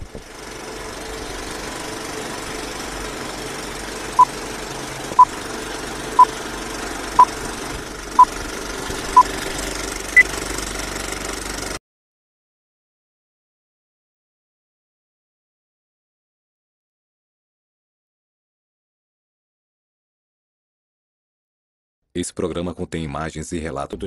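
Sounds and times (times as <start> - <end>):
film projector rattling: 0.2 - 11.8.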